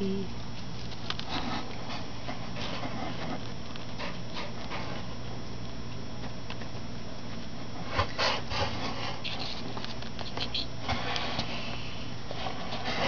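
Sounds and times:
steady low hum: 0.0 - 13.0
rustling and scratching in litter: 0.6 - 5.4, 7.4 - 13.0.

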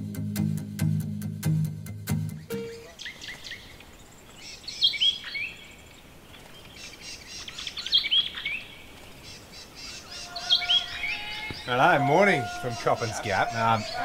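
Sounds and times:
faint bird chirping: 2.4 - 14.0
bird whistling sliding notes: 2.5 - 3.6.

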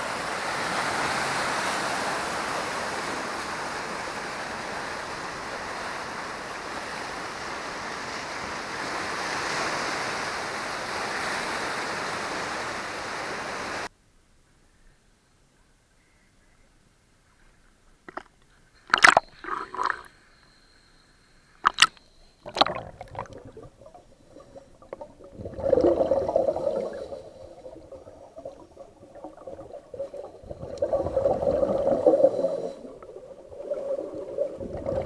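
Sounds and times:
surf breaking on rocks: 22.5 - 35.0.

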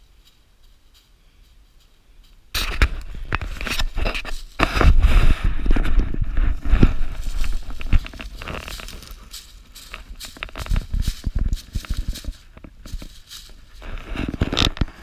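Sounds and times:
footsteps crunching through dry leaves: 0.0 - 15.0.

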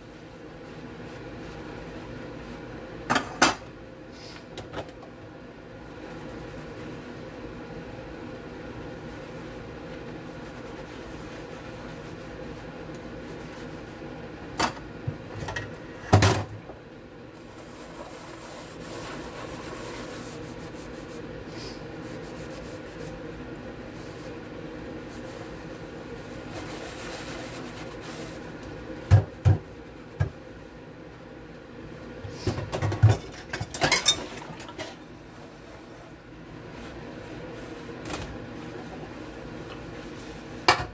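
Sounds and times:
faint steady hum: 0.0 - 40.9
sponge scrubbing dishes: 9.0 - 14.1, 17.5 - 21.3, 25.1 - 28.6
pots and pans clattering: 32.6 - 35.0.

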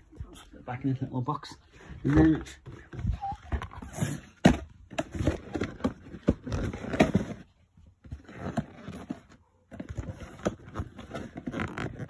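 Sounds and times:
handling noise of cardboard box: 2.0 - 12.0.

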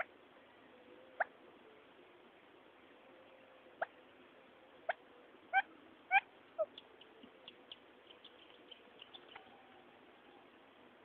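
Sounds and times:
faint high chirps: 0.0 - 10.9
quail call notes: 4.9 - 9.7.

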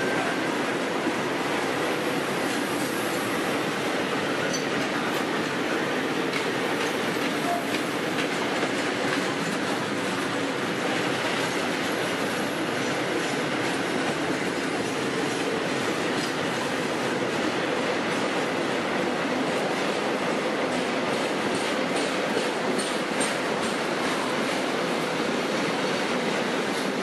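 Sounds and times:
train wheels rumbling on rail: 0.0 - 27.0
wheels clicking over rail joints: 4.4 - 16.9, 20.7 - 24.8.

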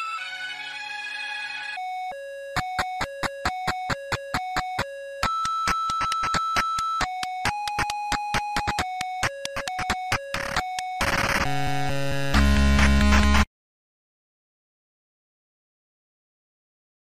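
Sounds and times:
retro game beep tune: 1.8 - 13.4
clicks: 2.6 - 11.5.

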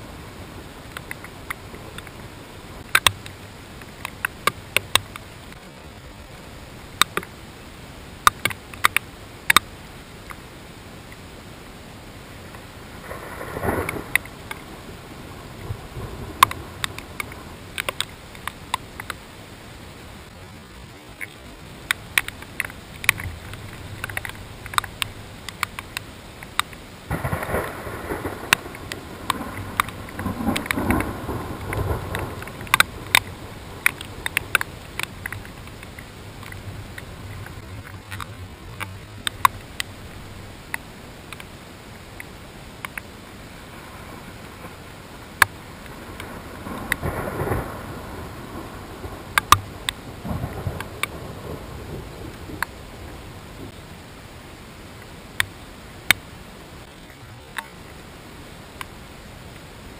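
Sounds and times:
rumbling wash: 0.0 - 59.9
raindrops ticking on plastic housing: 0.7 - 5.6, 6.7 - 7.4, 8.2 - 11.3, 12.4 - 19.3, 20.2 - 43.2, 44.4 - 53.8.

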